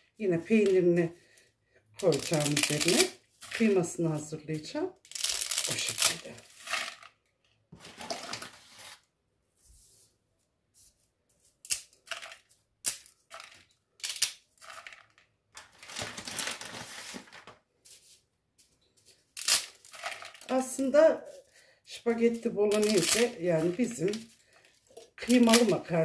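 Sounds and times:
pasta pieces falling into plastic bowl: 12.0s - 16.8s, 19.4s - 20.5s.

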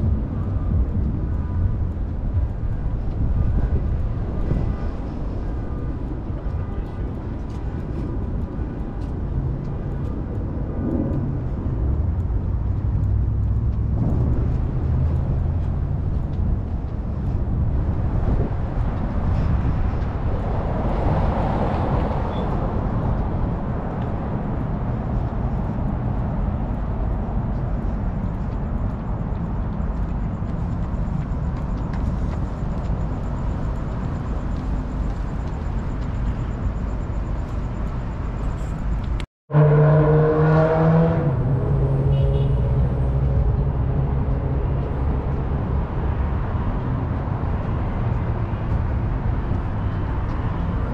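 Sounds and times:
road traffic rumble: 0.0s - 50.9s.

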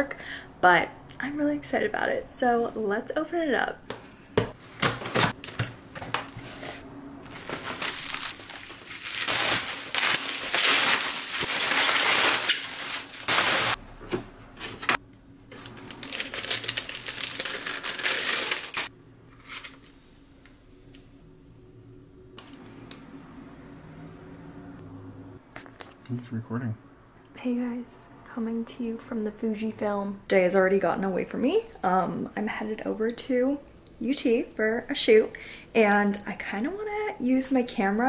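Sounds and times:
cardboard scraping: 4.8s - 13.8s
packaging crinkling: 7.3s - 13.8s, 15.5s - 19.9s
tape ripping: 7.3s - 13.8s, 15.5s - 19.8s.

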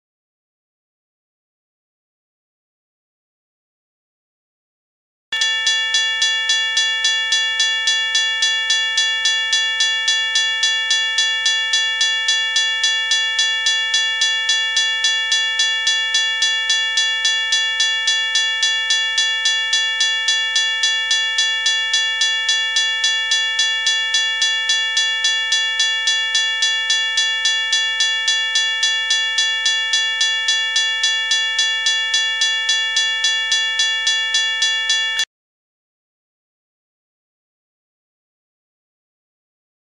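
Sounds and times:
railroad crossing bell ringing: 5.4s - 35.2s.

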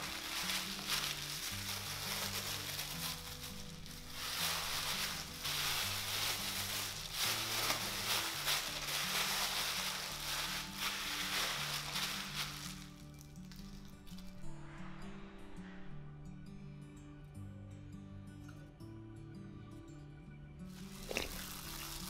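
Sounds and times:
plastic bag and gloves crinkling: 0.0s - 14.4s, 20.7s - 22.0s
soft background music: 0.0s - 22.0s.

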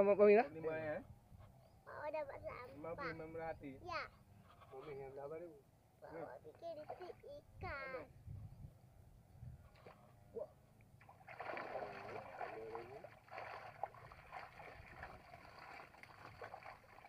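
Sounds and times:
fish splashing in water: 11.0s - 17.0s.

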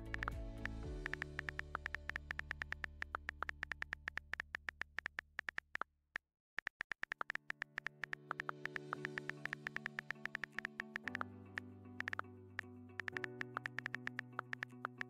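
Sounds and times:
synthesizer music pad: 0.0s - 4.2s, 7.6s - 15.0s
keyboard key clicks: 6.6s - 11.2s, 12.0s - 12.2s, 13.0s - 15.0s.

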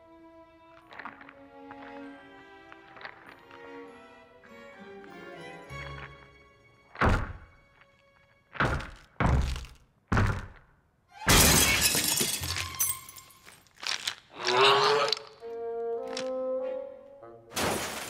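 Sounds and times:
glass shattering crash: 11.3s - 13.5s, 17.5s - 18.0s.

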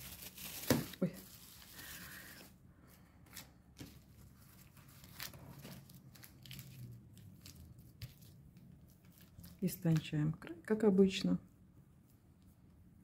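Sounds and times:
plastic sleeve rustling: 0.0s - 10.1s.

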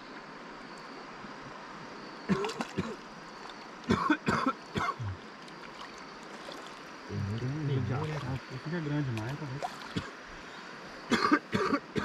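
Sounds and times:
person coughing: 3.9s - 5.2s, 11.1s - 12.0s.

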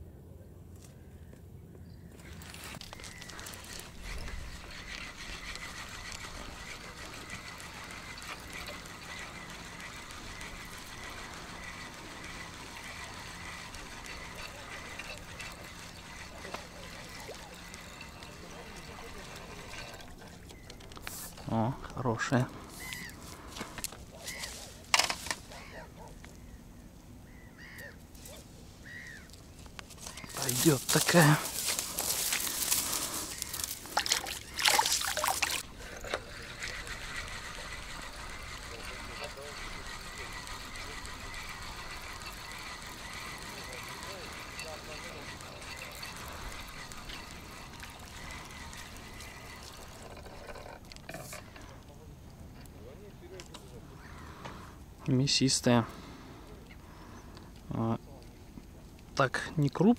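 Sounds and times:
steady background noise: 0.0s - 59.9s
fishing reel cranking: 2.8s - 21.6s, 30.0s - 51.8s
water splashing and trickling: 30.2s - 38.2s, 39.9s - 51.4s.

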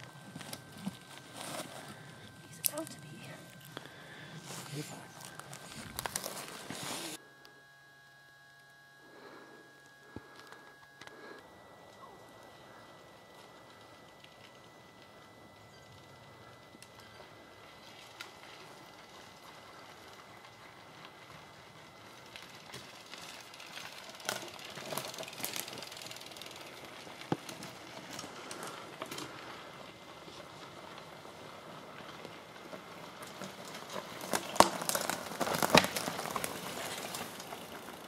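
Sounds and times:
bicycle tyres on dirt trail: 0.0s - 7.2s, 9.0s - 38.0s
twigs clicking and crackling: 0.0s - 7.2s, 22.0s - 29.7s, 32.0s - 38.0s.

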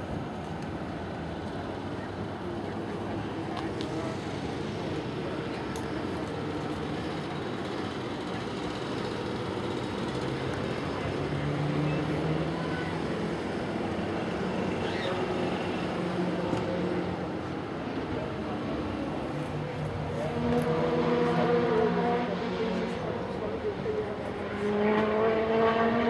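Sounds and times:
car engines running: 0.0s - 26.0s
faint voices: 1.4s - 26.0s.

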